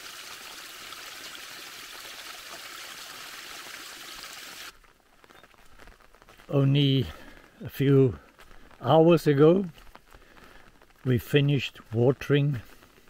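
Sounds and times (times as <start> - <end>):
water rushing down stony channel: 0.0 - 4.8.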